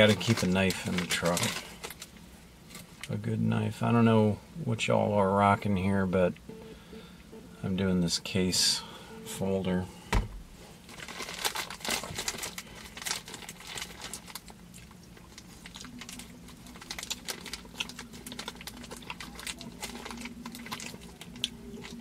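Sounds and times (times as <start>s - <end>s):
packaging crinkling and rustling: 0.0s - 3.0s, 10.8s - 22.0s.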